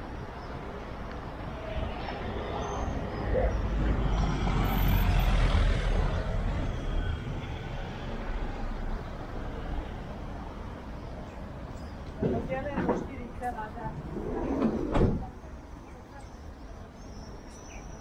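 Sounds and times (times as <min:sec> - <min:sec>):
heavy vehicle passing: 0:02.0 - 0:10.2.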